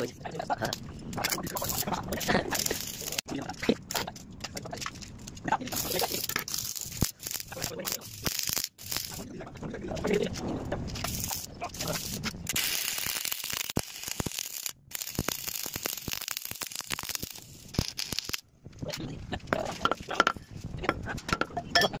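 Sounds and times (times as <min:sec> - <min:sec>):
welding arc crackling: 0:01.2 - 0:03.3, 0:05.5 - 0:09.3, 0:10.9 - 0:18.5.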